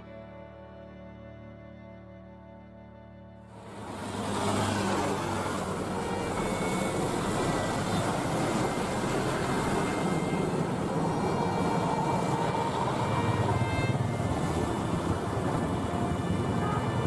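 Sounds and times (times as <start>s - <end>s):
jet engine roar with whine: 3.6s - 17.0s.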